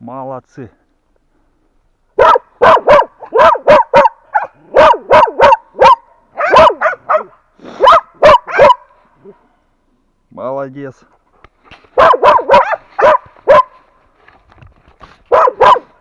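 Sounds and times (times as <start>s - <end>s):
dog barking: 2.2s - 9.4s, 12.0s - 13.8s, 15.3s - 16.0s.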